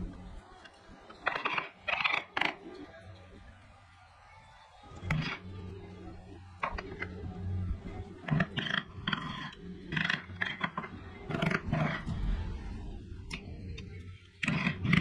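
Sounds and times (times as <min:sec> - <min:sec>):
woodworking tool working wood: 0:01.1 - 0:02.6, 0:06.6 - 0:12.4, 0:14.4 - 0:15.0
steady low hum: 0:05.4 - 0:14.3.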